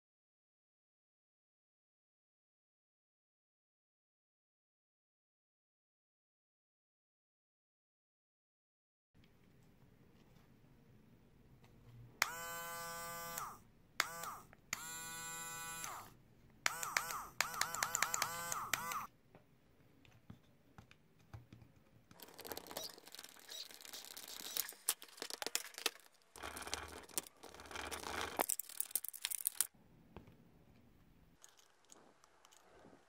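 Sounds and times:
electric screwdriver motor whine: 0:12.2 - 0:16.1, 0:16.7 - 0:19.1, 0:22.2 - 0:24.9
hands clicking and scraping plastic: 0:20.0 - 0:33.0.

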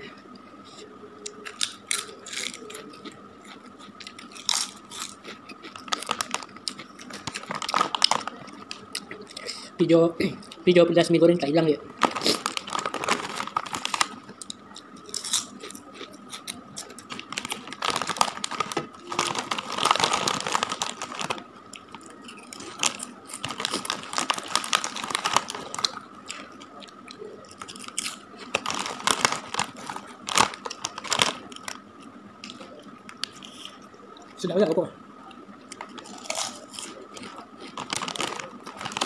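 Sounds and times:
plastic chip bag crinkling: 0:01.3 - 0:09.3, 0:12.0 - 0:31.8, 0:35.7 - 0:39.0
chips crunched between teeth: 0:01.3 - 0:09.5, 0:12.0 - 0:26.5, 0:35.8 - 0:39.0.

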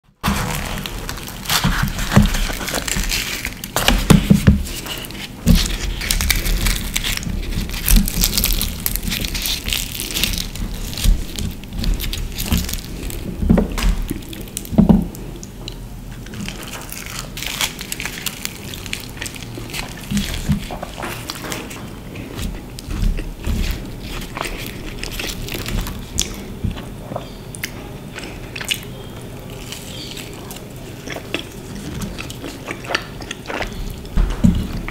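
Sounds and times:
fried bread crackling and tearing: 0:00.1 - 0:34.9
soft thumps: 0:34.1 - 0:34.9.

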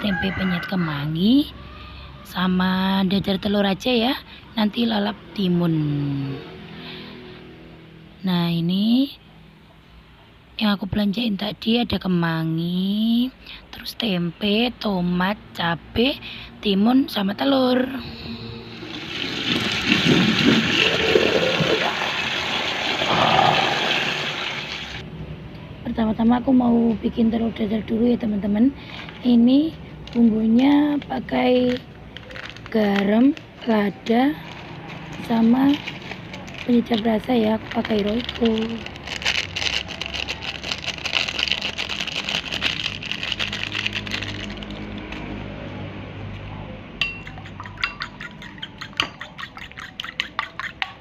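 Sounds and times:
tap water running: 0:18.9 - 0:25.0.

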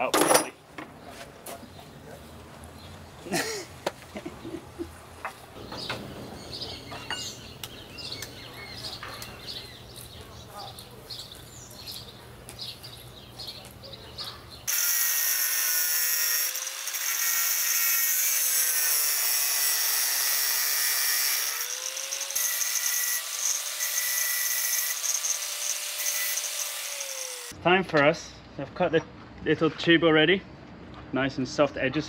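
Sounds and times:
angle grinder cutting metal: 0:14.7 - 0:27.6.

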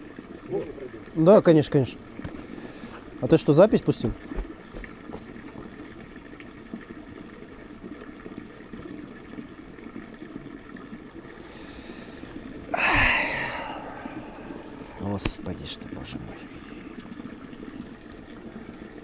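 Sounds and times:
faint outdoor background noise: 0:00.0 - 0:19.0
man sighing: 0:12.7 - 0:15.0.

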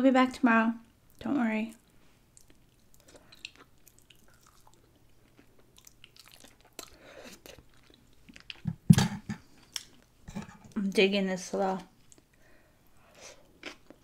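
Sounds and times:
wet chewing mouth clicks: 0:02.4 - 0:08.6.

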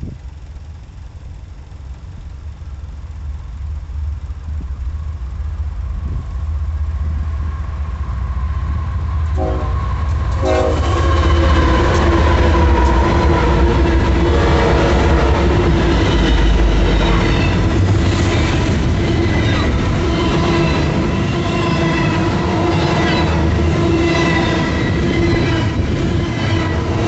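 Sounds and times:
diesel locomotive rumble: 0:00.0 - 0:27.0
train wheels clattering on rails: 0:09.2 - 0:27.0.

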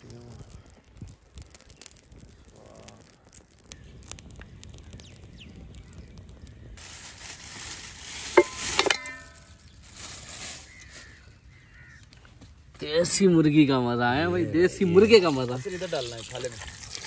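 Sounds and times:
wood fire crackling: 0:00.0 - 0:17.0
plastic bag rustling: 0:06.8 - 0:11.2
metallic clank on steel pot: 0:08.3 - 0:09.4.

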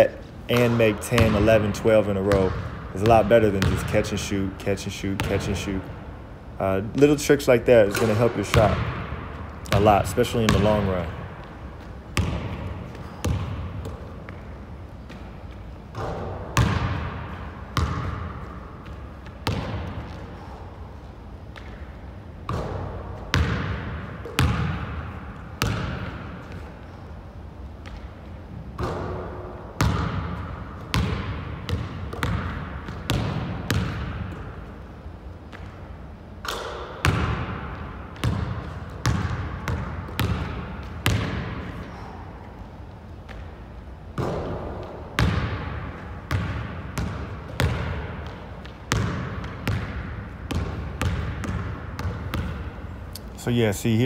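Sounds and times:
basketball bouncing on hardwood floor: 0:00.5 - 0:01.8, 0:02.4 - 0:04.0, 0:08.0 - 0:09.1, 0:09.7 - 0:11.2, 0:12.2 - 0:14.5, 0:15.9 - 0:20.2, 0:22.5 - 0:26.6, 0:28.8 - 0:34.5, 0:36.4 - 0:41.7, 0:44.2 - 0:52.7.

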